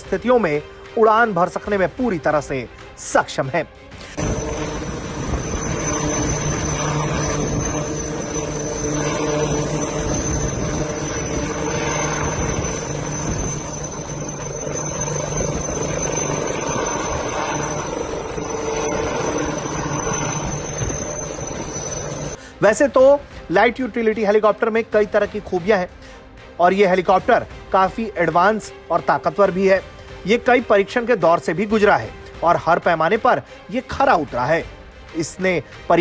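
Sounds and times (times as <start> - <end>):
helicopter rotor noise: 0.0 - 36.0
high turbine whine: 3.8 - 22.6.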